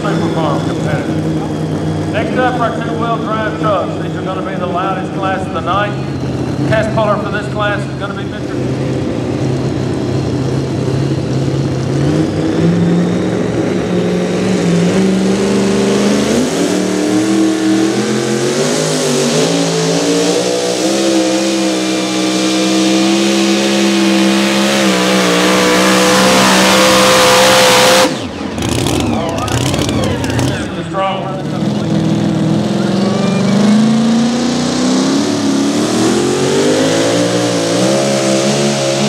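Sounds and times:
supercharged truck engine revving: 0.0s - 39.0s.

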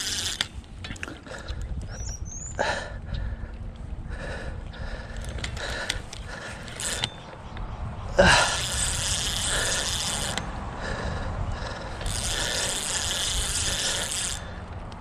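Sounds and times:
fishing reel ratcheting and whirring: 0.0s - 1.6s, 5.1s - 7.4s, 8.2s - 10.6s, 11.6s - 14.7s.

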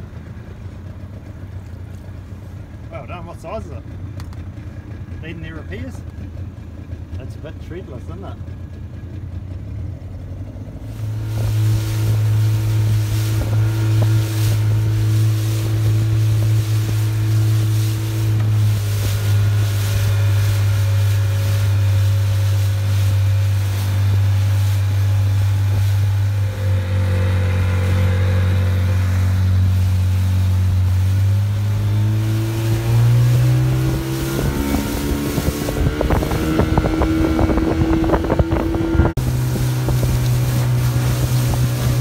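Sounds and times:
motorboat engine running: 0.0s - 42.0s
rapid irregular knocks and buffeting: 0.8s - 26.6s.

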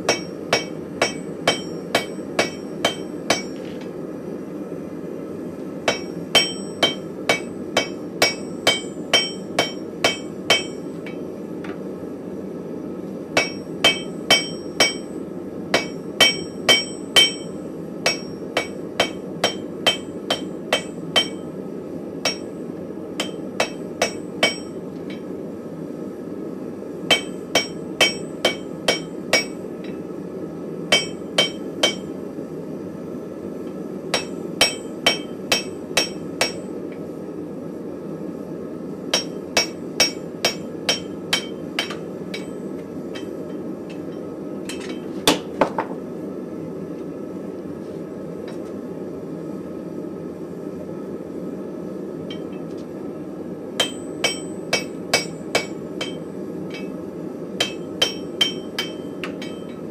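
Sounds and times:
hammer ringing on anvil: 0.1s - 3.6s, 5.9s - 11.2s, 13.4s - 15.1s, 15.7s - 21.5s, 22.2s - 22.5s, 23.2s - 25.3s, 27.1s - 30.0s, 30.9s - 32.1s, 34.1s - 36.7s, 39.1s - 45.0s, 53.8s - 57.0s, 57.6s - 59.8s.

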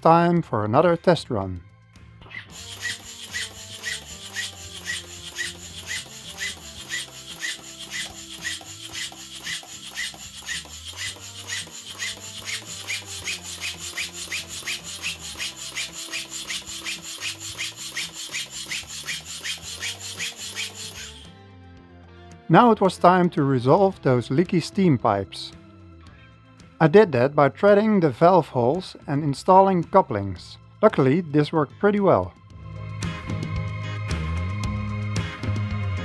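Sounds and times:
steam engine exhaust puffing: 2.3s - 21.3s.

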